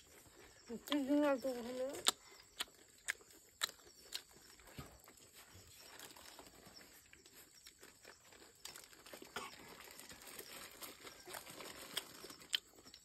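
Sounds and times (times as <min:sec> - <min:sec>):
paper crinkling: 0:05.3 - 0:13.0.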